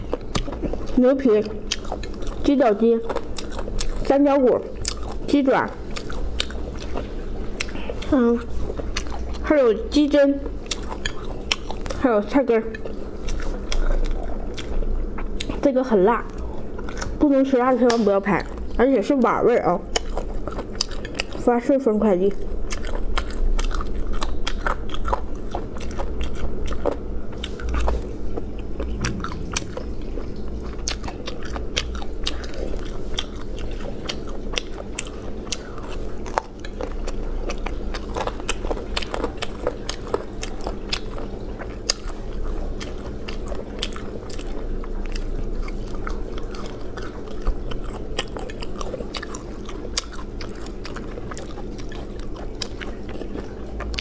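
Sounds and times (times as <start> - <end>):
crunchy chewing and biting: 0.0 - 4.2, 4.8 - 9.4, 10.4 - 12.1, 12.7 - 15.7, 16.3 - 18.7, 22.5 - 54.0
low hum: 25.3 - 35.0.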